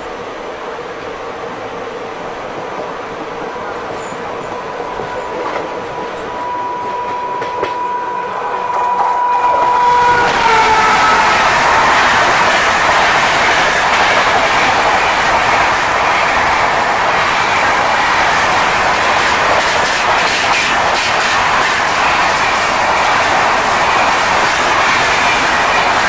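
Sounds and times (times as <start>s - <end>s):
train wheels on rails: 0.0s - 26.0s
sharp clicks from rails: 8.7s - 26.0s.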